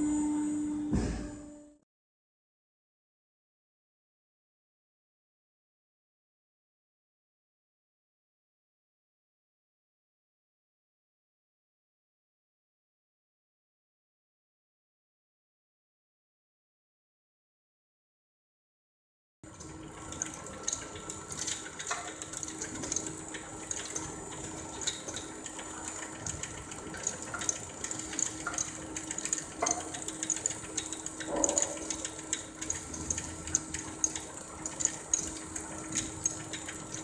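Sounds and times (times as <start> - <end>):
machinery humming: 0.0 - 1.8, 19.5 - 37.0
ticks and light rattles: 19.5 - 37.0.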